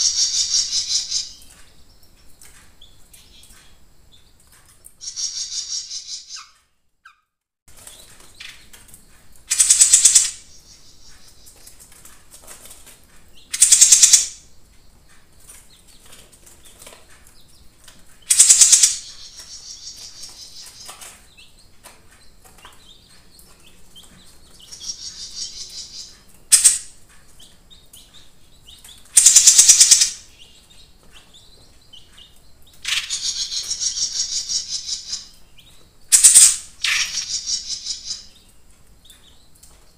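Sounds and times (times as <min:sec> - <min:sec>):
soft bird chirps: 0:00.0 - 0:12.2, 0:13.2 - 0:39.9
songbird trilling: 0:05.0 - 0:06.5, 0:32.8 - 0:35.3, 0:36.2 - 0:38.4.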